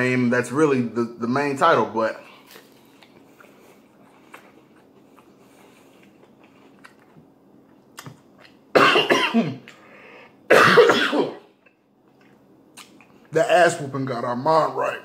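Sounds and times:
man coughing: 8.8 - 9.7, 10.5 - 11.5.

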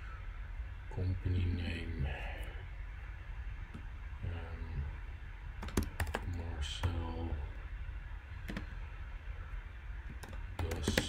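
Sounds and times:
computer keyboard typing: 5.6 - 7.0, 10.1 - 11.0.

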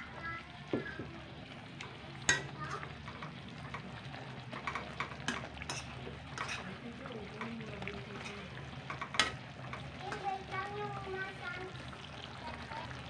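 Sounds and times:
meat sizzling in a pan: 0.0 - 13.0
metal spoon scraping a pan: 4.6 - 6.8, 8.2 - 10.2.

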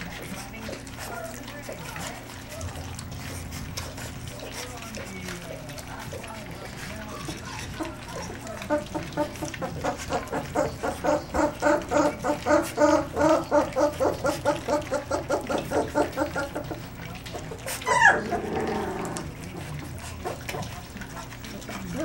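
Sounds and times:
puppies grunting squeakily: 5.7 - 22.0
puppy yelp: 17.8 - 18.3.

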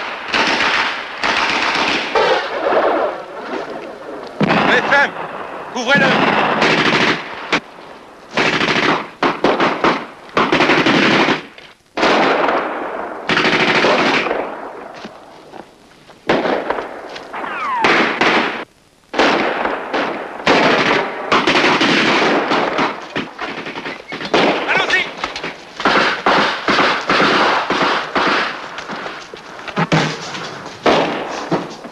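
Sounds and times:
single gunshots: 4.4 - 7.6, 8.3 - 14.9, 16.3 - 28.6, 30.8 - 31.6
machine gun bursts: 6.0 - 7.3, 8.4 - 12.3, 13.3 - 14.3.

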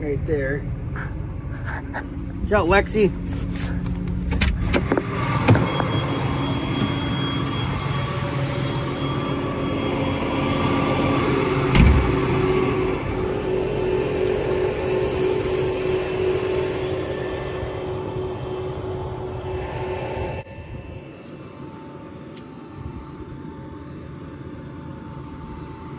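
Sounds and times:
thump: 11.7 - 12.0.

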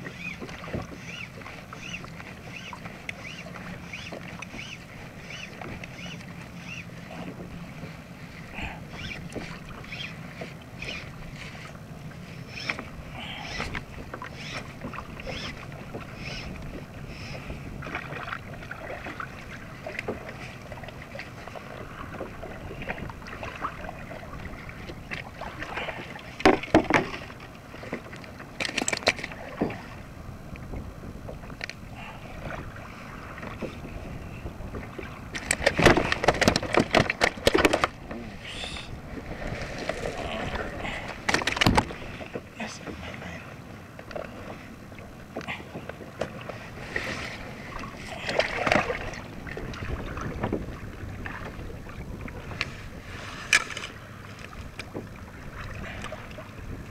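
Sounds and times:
water lapping against kayak hull: 0.0 - 56.9.

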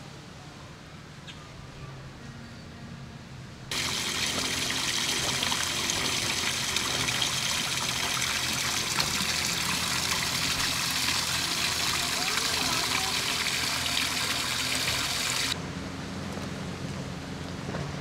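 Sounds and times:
fountain water splashing into pool: 3.7 - 15.6.

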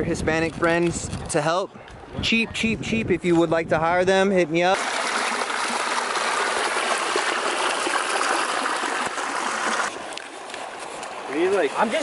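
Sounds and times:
creek water trickling over rocks: 4.8 - 12.0
faint water sound: 4.8 - 12.0.

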